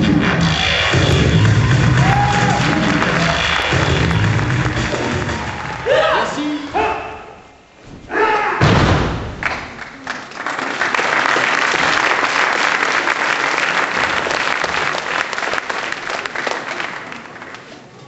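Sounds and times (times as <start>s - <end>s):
audience applauding: 0.2s - 6.4s, 9.4s - 18.0s
heavy thud: 7.8s - 9.5s.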